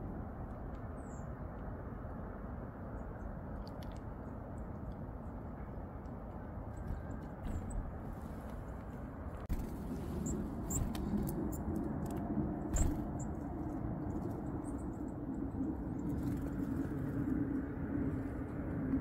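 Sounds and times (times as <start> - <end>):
low outdoor rumble: 0.0 - 19.0
small birds chirping: 6.6 - 11.8.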